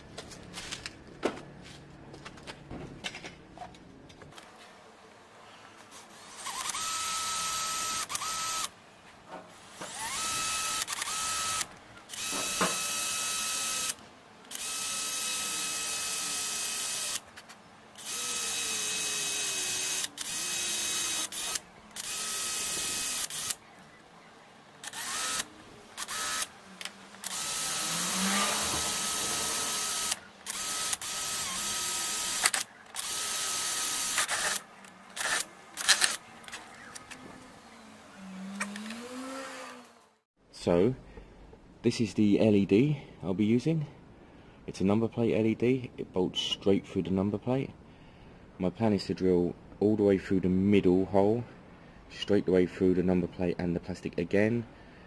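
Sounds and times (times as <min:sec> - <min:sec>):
cordless drill whining: 0:06.2 - 0:08.7, 0:09.8 - 0:17.2, 0:18.0 - 0:23.6, 0:24.8 - 0:26.5, 0:27.2 - 0:34.6, 0:38.2 - 0:40.1.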